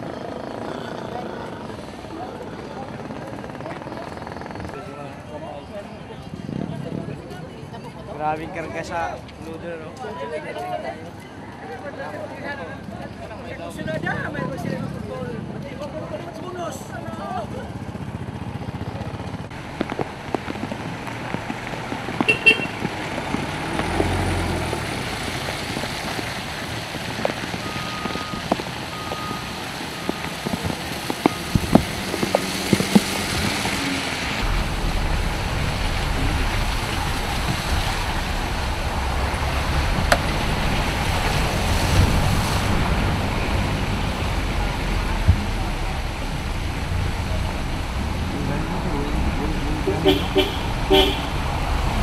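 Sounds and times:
outdoor noise: 0.0s - 52.0s
vehicle engines running: 11.0s - 52.0s
low rumble: 33.0s - 52.0s
short horn toots: 49.8s - 51.3s.

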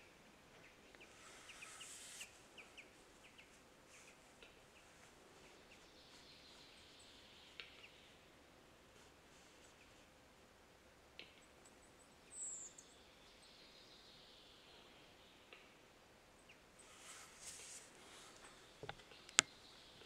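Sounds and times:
bird scraping hiss: 1.0s - 4.2s, 16.8s - 18.7s.

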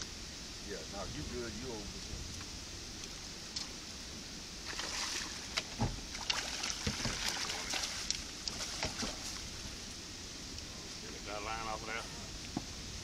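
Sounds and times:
rushing hiss of water: 0.0s - 13.0s
water splashing and slapping: 4.6s - 9.9s.

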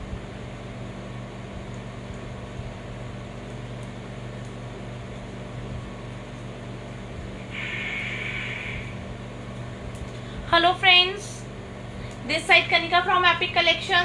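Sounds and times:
low electrical buzz: 0.0s - 14.0s
machinery hum and hiss: 0.0s - 14.0s
loud hissing noise: 7.4s - 9.2s.

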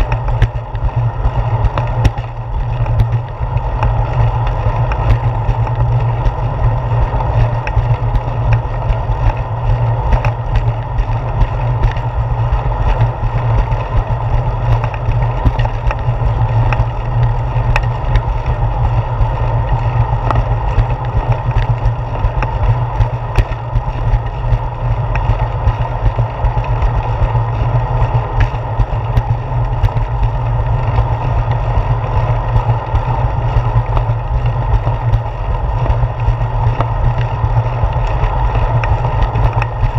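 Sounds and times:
wind and ride vibration rumble: 0.0s - 39.9s
light ticks: 19.7s - 23.6s.

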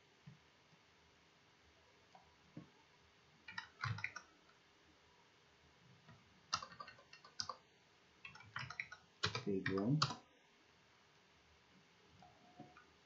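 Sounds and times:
keyboard keys clicking: 3.5s - 4.3s, 6.5s - 7.6s, 8.2s - 10.2s.

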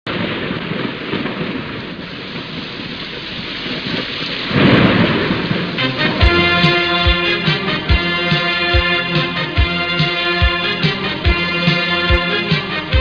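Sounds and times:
steady rain: 0.1s - 13.0s
thunder rumble: 0.1s - 13.0s
music: 5.7s - 13.0s.

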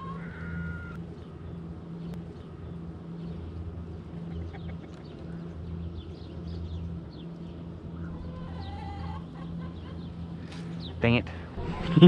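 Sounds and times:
small birds chirping: 0.0s - 11.5s
steady low hum: 0.0s - 12.0s
chickens clucking: 8.1s - 10.3s.

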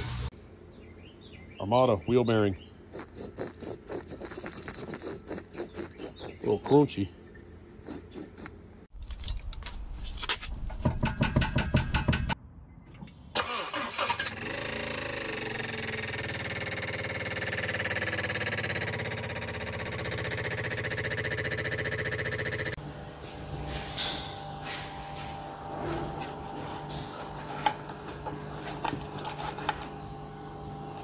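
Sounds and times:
wheel bearing grinding: 2.8s - 8.9s
car engine running: 14.4s - 22.8s.

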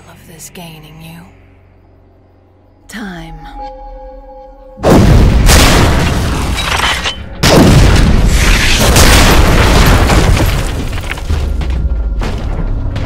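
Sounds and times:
explosion boom with rumble: 4.8s - 6.6s, 7.4s - 13.0s.

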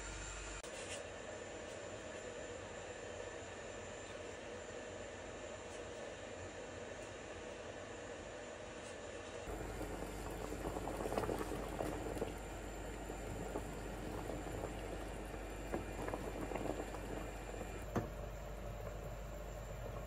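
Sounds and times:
syrup boiling in a pot: 9.4s - 20.0s.

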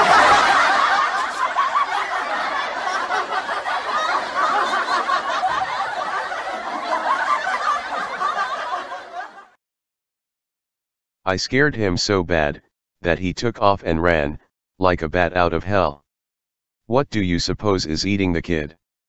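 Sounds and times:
audience laughter: 0.0s - 9.6s.

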